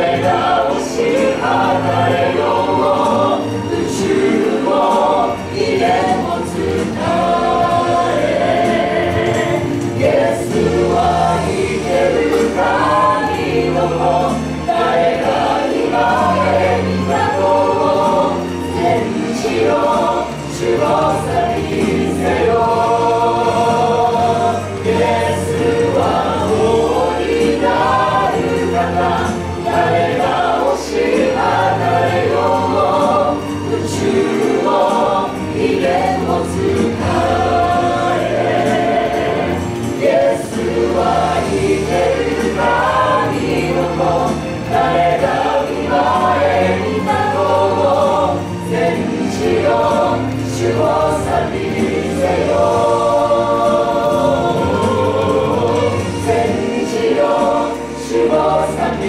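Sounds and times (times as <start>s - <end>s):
a cappella ensemble singing: 0.0s - 59.0s.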